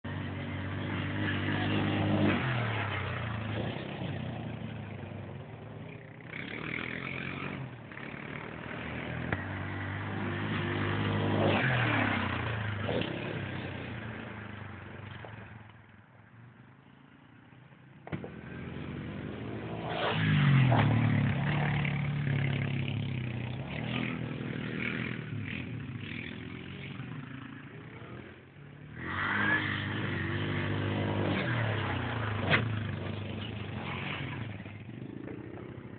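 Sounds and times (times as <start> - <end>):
atv engine revving: 0.0 - 15.6, 18.0 - 35.9.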